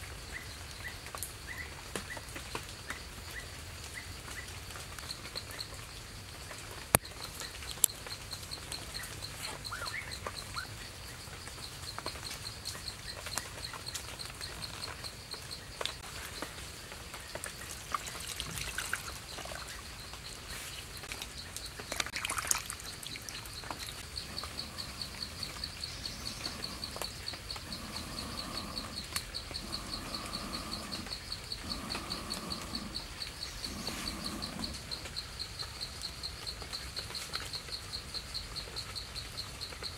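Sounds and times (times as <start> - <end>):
insect chirping: 0.0 - 39.9
low animal call: 24.0 - 35.0.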